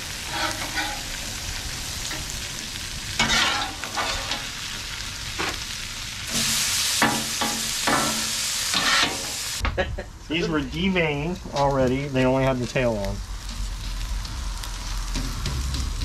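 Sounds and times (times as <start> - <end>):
shrimp sizzling on griddle: 0.0 - 9.6, 10.4 - 16.0
metal spatula scraping: 0.2 - 1.2, 3.2 - 4.5, 7.9 - 9.4.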